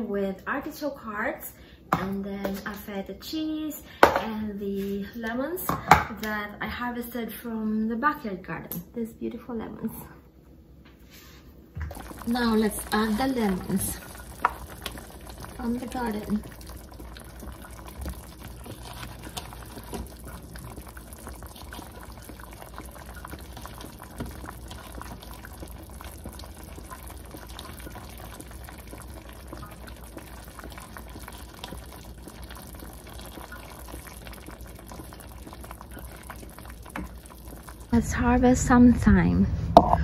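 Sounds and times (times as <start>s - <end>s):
broth bubbling in a pot: 11.8s - 38.8s.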